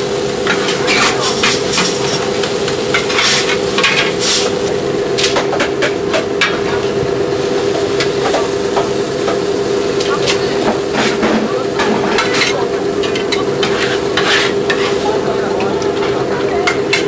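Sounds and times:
food sizzling on a griddle: 0.0 - 17.0
steady hum: 0.0 - 17.0
metal spatulas scraping a plate: 12.1 - 15.0.

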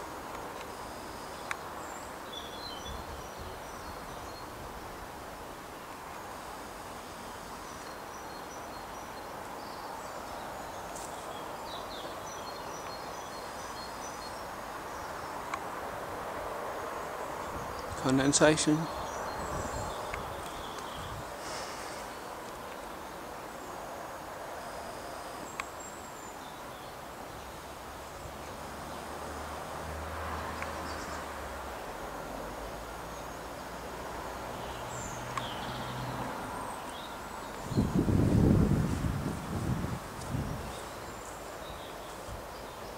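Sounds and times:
outdoor hiss: 0.0 - 42.9.

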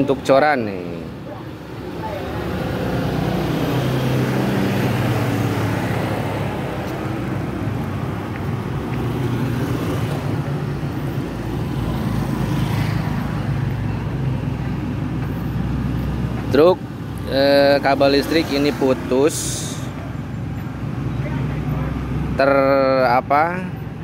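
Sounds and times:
road traffic noise: 0.0 - 24.0.

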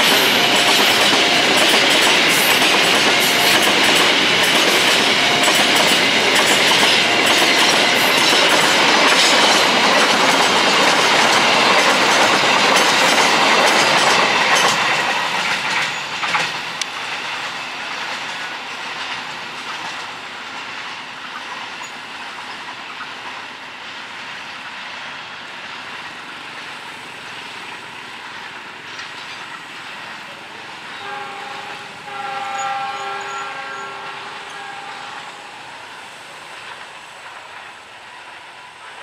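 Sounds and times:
train horn: 0.0 - 1.8, 3.0 - 3.9, 4.7 - 6.0, 30.9 - 36.0
freight train clattering on rails: 0.0 - 39.0.

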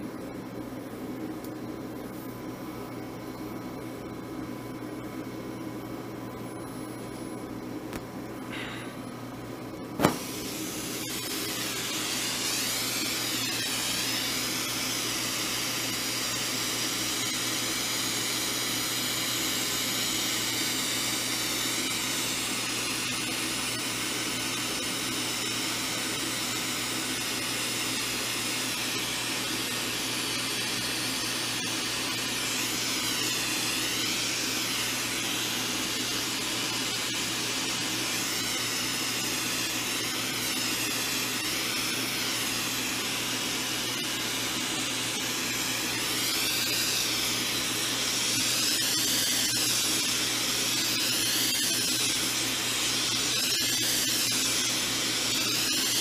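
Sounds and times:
steady low hum: 0.0 - 18.0
gas torch hissing: 9.9 - 56.0.

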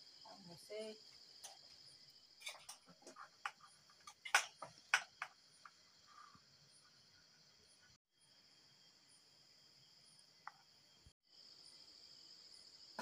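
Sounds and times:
crickets chirring: 0.0 - 13.0
steel spoon clinking and scraping: 2.4 - 4.7.

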